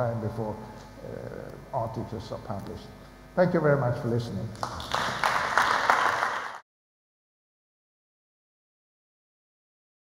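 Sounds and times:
audience applauding: 0:04.6 - 0:06.6.

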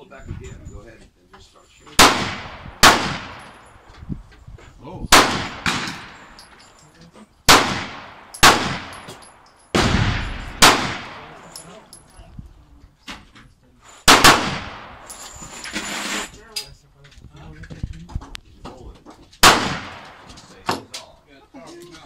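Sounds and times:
handgun shots with echo: 0:02.0 - 0:03.6, 0:07.5 - 0:11.4, 0:14.1 - 0:15.1, 0:19.4 - 0:20.3.

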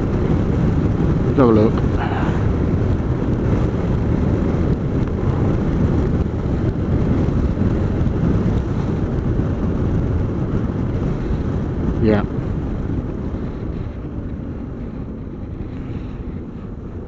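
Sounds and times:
motorcycle engine: 0:00.0 - 0:17.0
wind rushing on microphone: 0:00.0 - 0:17.0.

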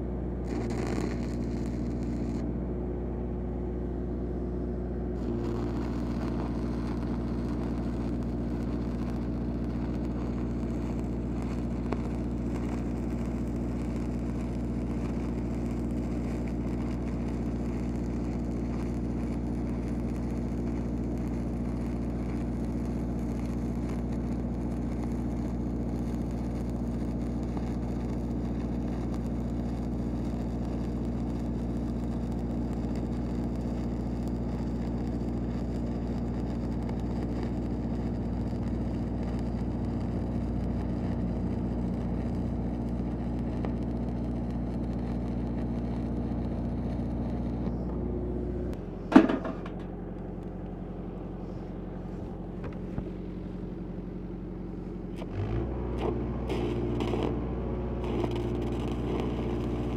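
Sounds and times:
welding machine engine drone: 0:00.0 - 0:59.9
welding arc crackling hiss: 0:00.4 - 0:02.4, 0:05.2 - 0:47.9, 0:55.2 - 0:59.9
metal clank: 0:49.1 - 0:49.9.

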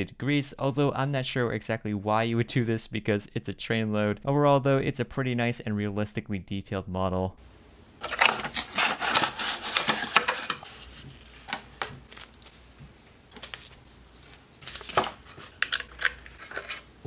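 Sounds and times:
plastic bag crinkling: 0:08.0 - 0:17.0.

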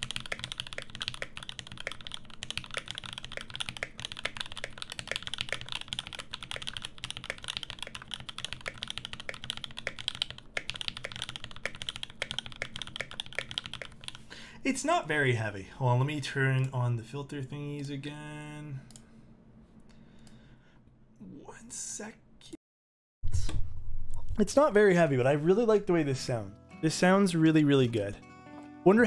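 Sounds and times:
mechanical keyboard typing: 0:00.0 - 0:14.2.

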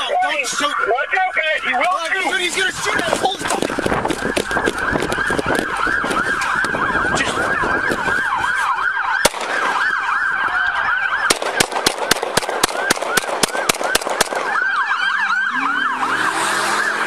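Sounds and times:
police sirens yelping: 0:00.0 - 0:17.0
sharp cracks: 0:09.2 - 0:10.1, 0:11.2 - 0:14.6.

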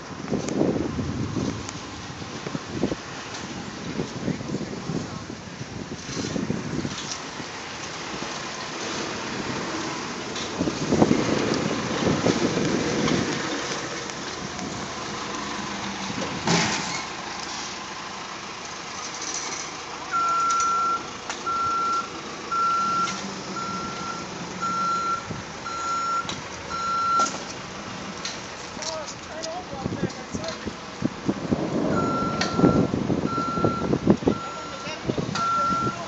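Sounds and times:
wind: 0:00.0 - 0:36.0
backup alarm beeping: 0:20.1 - 0:27.3, 0:31.9 - 0:36.0.

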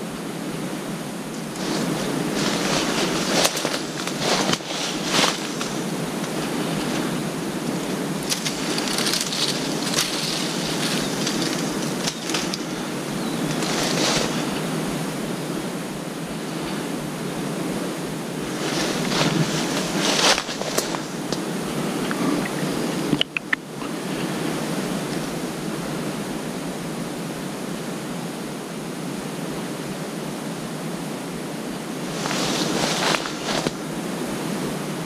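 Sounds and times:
rushing outdoor background hiss: 0:00.0 - 0:35.0
brief rustles: 0:01.6 - 0:14.7, 0:32.1 - 0:33.8.

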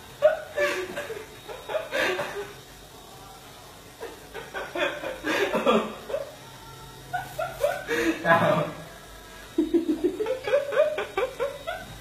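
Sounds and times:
person laughing and chuckling: 0:00.2 - 0:02.6, 0:07.1 - 0:08.9, 0:09.6 - 0:12.0.

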